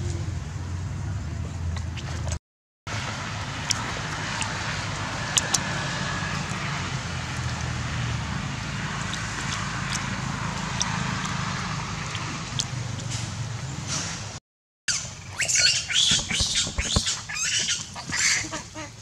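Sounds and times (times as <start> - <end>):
low motor rumble: 0.0 - 14.4.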